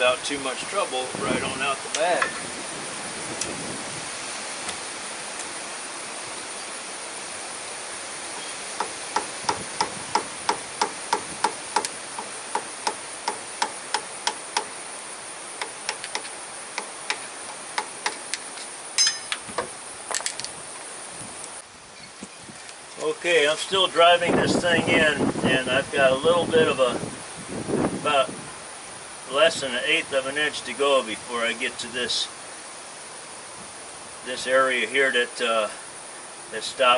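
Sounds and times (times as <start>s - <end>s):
hammer tapping on steel drift: 8.8s - 14.7s, 19.0s - 19.7s.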